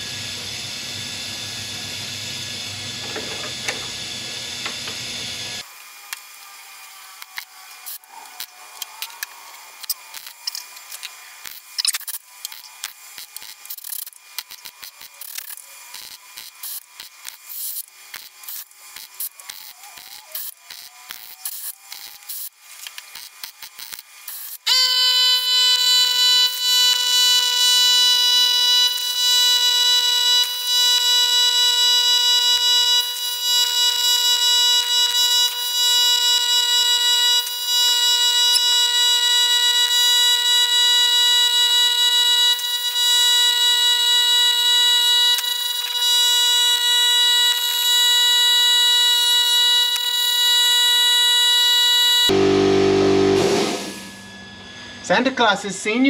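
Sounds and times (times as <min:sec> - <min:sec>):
steady electronic tone: 0:49.1 - 0:55.5.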